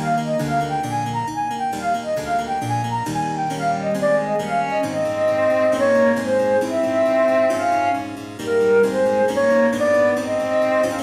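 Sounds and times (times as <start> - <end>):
instrumental music: 0.0 - 11.0.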